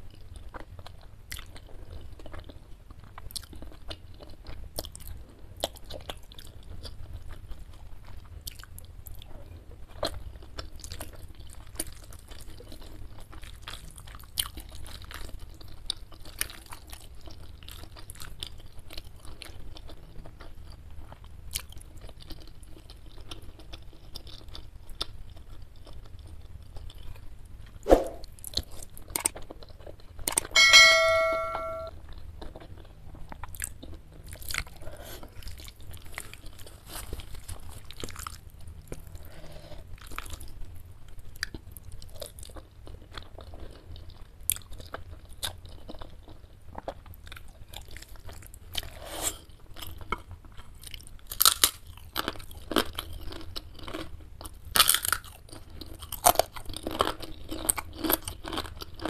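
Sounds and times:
chewing and slurping noodles: 41.3 - 59.0.

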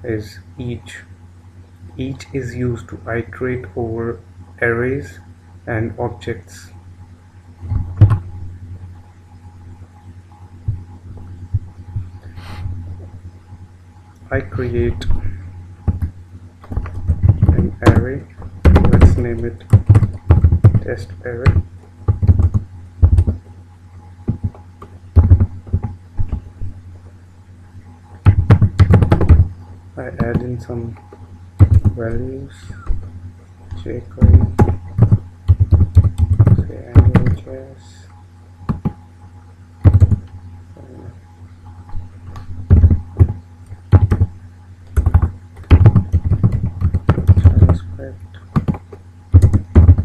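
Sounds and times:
low electrical hum: 0.0 - 50.0
computer keyboard keystrokes: 15.9 - 23.4, 30.2 - 32.0, 34.2 - 37.4, 38.7 - 39.0, 39.8 - 40.4, 42.7 - 44.3, 44.9 - 47.8, 48.5 - 50.0.

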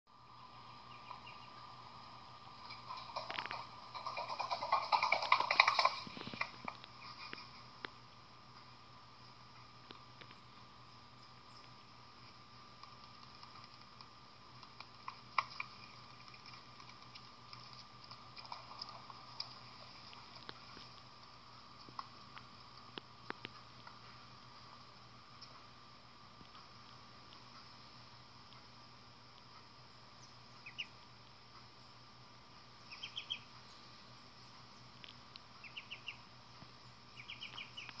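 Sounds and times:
faint background hum and hiss: 0.1 - 38.0
faint high whine: 0.1 - 38.0
duckling peeping: 0.7 - 1.6, 30.2 - 31.0, 32.8 - 34.5, 35.6 - 36.3, 37.0 - 38.0
duckling feet pattering on floor: 2.6 - 8.0, 11.6 - 24.8, 35.0 - 38.0.

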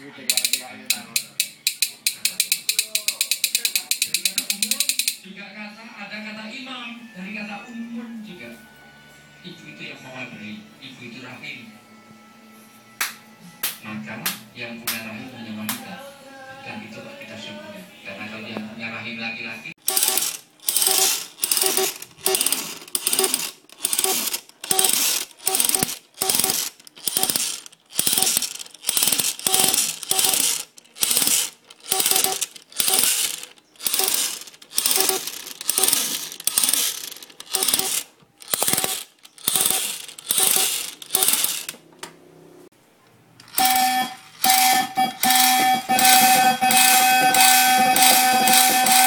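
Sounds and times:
buzzing electronic tone: 43.6 - 49.0.

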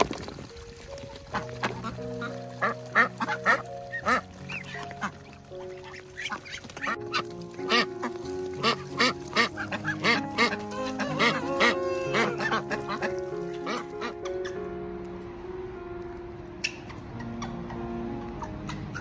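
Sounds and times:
background music with held notes: 0.0 - 19.0
ducks quacking: 1.3 - 14.6.

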